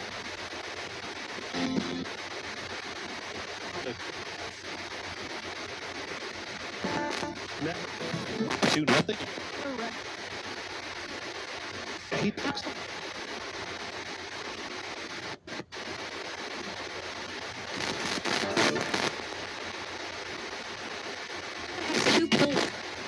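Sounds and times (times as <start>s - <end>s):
choppy broadcast snatches: 0.0s - 23.0s
radio static hiss: 0.0s - 23.0s
radio blip: 1.4s - 2.2s, 6.7s - 10.0s, 11.9s - 13.4s, 17.7s - 19.3s, 21.8s - 22.9s.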